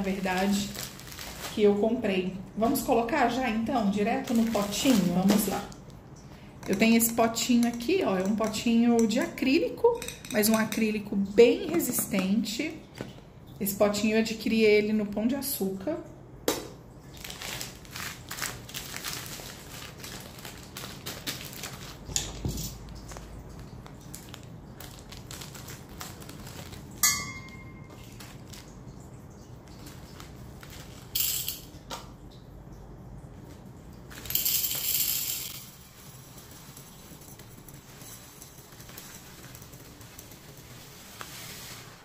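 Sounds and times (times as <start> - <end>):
plastic bag crinkling: 0.0 - 6.0, 17.0 - 27.0, 27.9 - 29.0, 35.9 - 41.9.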